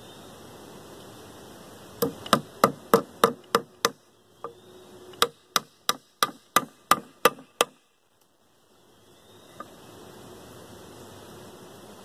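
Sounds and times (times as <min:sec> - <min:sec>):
hammer striking wood: 0:02.0 - 0:04.0, 0:05.2 - 0:07.8.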